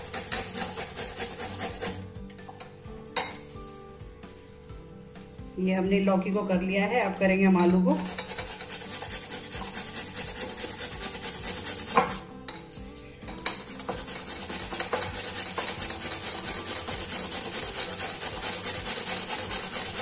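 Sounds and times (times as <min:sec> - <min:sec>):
potato grating on metal grater: 0:00.0 - 0:02.0, 0:08.0 - 0:12.4, 0:13.6 - 0:20.0.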